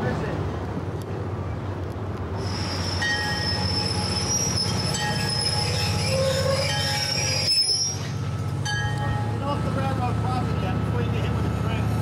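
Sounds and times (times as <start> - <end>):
locomotive engine rumble: 0.0 - 12.0
train wheels squealing: 2.4 - 9.0.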